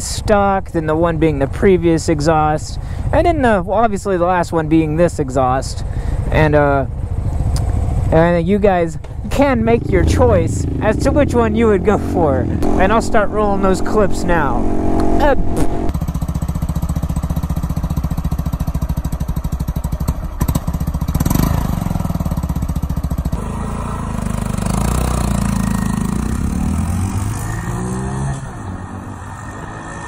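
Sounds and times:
motorcycle riding on road: 0:00.0 - 0:30.0
motorcycle engine idling: 0:05.8 - 0:26.6
throttle blip: 0:12.6 - 0:15.9.

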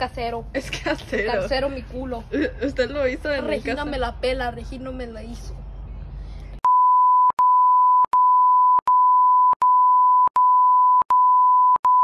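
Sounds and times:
censor bleep tone: 0:06.6 - 0:12.0.

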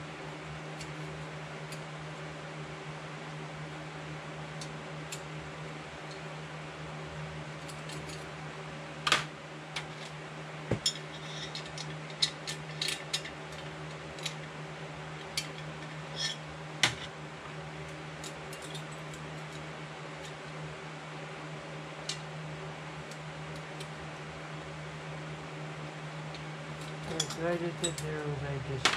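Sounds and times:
low background hum: 0:00.0 - 0:28.9
metal tool clinking on chainsaw: 0:27.1 - 0:28.1.

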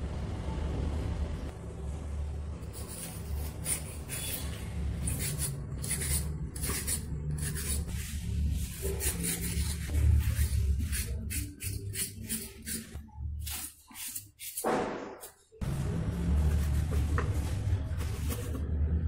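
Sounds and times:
peeler scraping banana skin: 0:02.7 - 0:07.9, 0:08.7 - 0:14.7.

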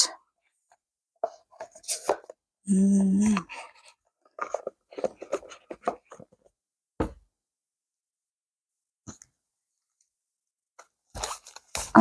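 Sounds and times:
cards rustling and tapping: 0:03.3 - 0:06.6.

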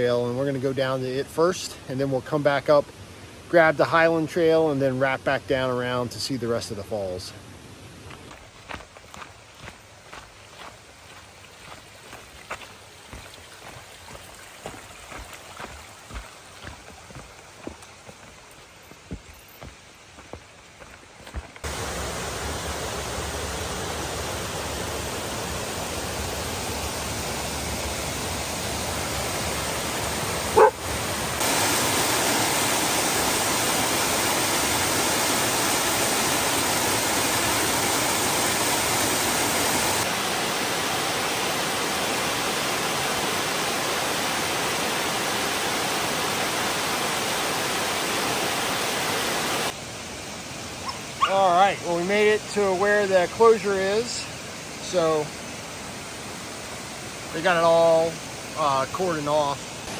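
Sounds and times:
waterfall roaring: 0:07.9 - 0:59.9
dog yipping: 0:30.6 - 0:30.8, 0:50.8 - 0:51.4.

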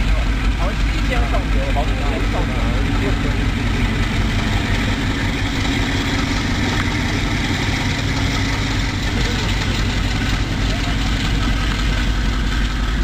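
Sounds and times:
diesel locomotive engine droning: 0:00.0 - 0:13.0.

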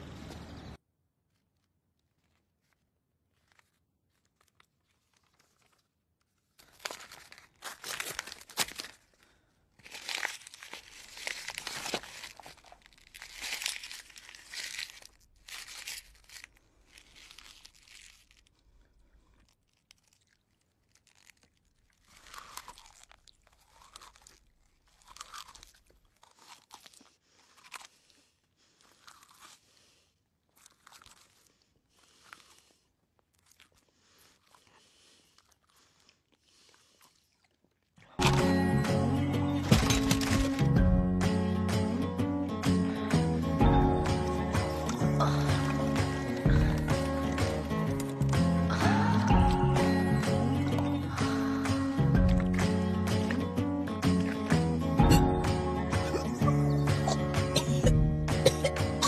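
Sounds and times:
man chewing paper: 0:00.9 - 0:59.0
paper tearing and crumpling: 0:01.2 - 0:28.2, 0:38.2 - 0:40.9, 0:44.0 - 0:57.7.

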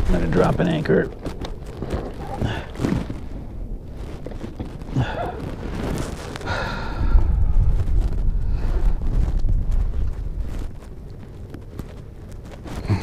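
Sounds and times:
wind rumbling on microphone: 0:00.0 - 0:13.0
man breathing and sighing: 0:02.3 - 0:03.5, 0:04.8 - 0:09.8, 0:12.7 - 0:13.0.

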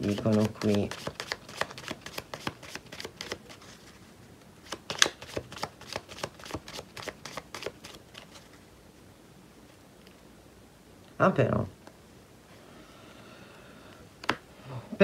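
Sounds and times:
cards being shuffled: 0:00.0 - 0:04.0, 0:04.6 - 0:08.6.

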